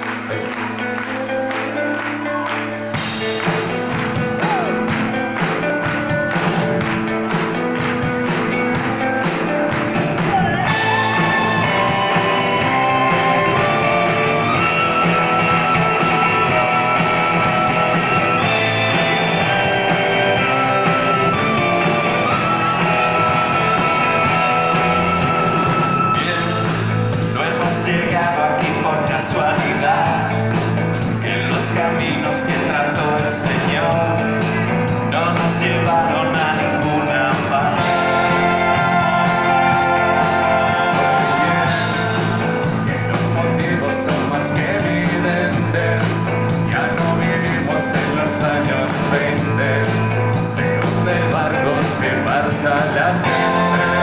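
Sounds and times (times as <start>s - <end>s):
live rock band playing: 0.0s - 54.0s
person singing: 0.0s - 54.0s.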